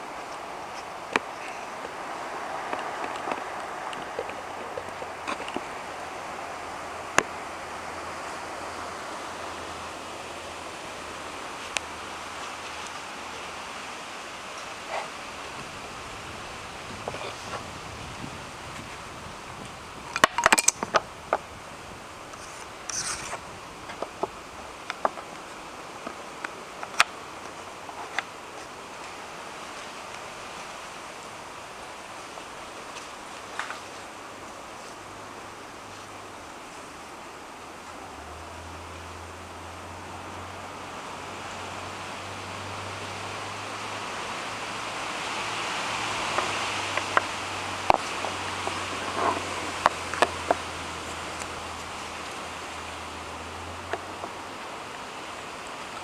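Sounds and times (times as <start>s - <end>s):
scraping rustle: 0.0s - 6.2s, 22.2s - 24.4s, 32.1s - 35.1s, 46.0s - 52.5s
steady hiss: 0.0s - 56.0s.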